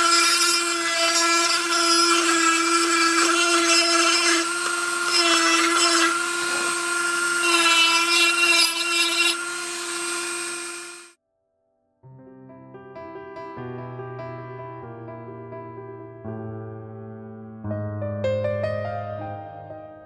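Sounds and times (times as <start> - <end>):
rotary tool grinding wood: 0.0 - 11.2.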